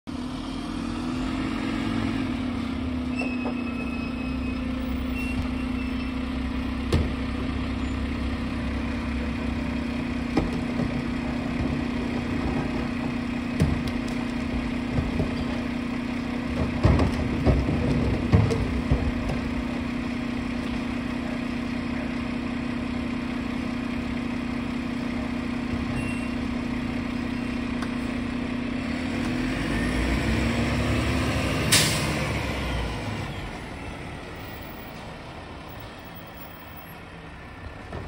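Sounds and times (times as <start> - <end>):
truck engine idling: 2.2 - 28.8, 31.8 - 38.0
sharp knocks and clatter: 10.3 - 15.8, 16.4 - 19.7.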